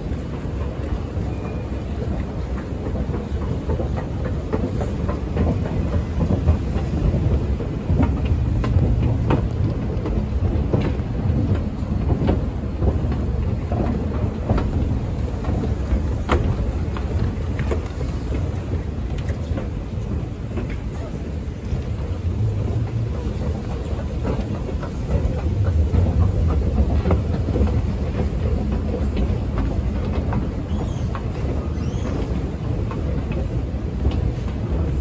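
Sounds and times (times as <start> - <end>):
low rumble: 7.0 - 13.9, 19.9 - 29.3.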